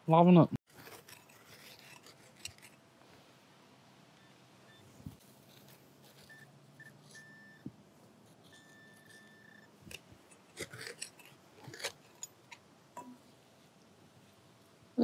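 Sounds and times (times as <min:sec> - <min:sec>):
scraping and rustling of soil: 0:00.7 - 0:03.4, 0:04.9 - 0:09.4
pinpointer beeping: 0:06.2 - 0:07.7, 0:08.4 - 0:09.8.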